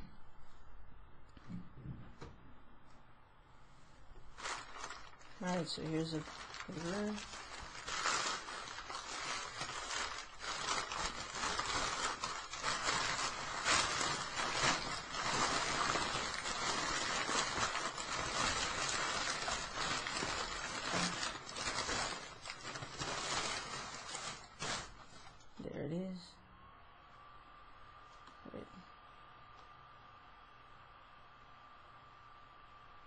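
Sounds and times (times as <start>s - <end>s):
paper wrap rustling and crinkling: 4.2s - 25.5s.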